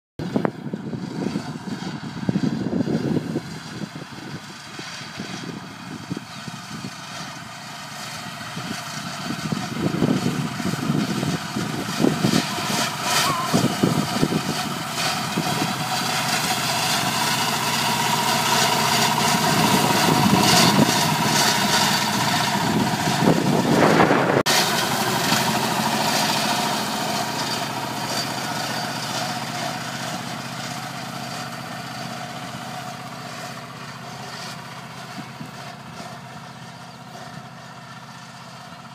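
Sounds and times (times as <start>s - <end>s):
wind buffeting microphone: 0.2s - 7.0s, 8.4s - 24.5s
mower cutting grass: 0.2s - 38.9s
tractor engine running: 0.2s - 38.9s.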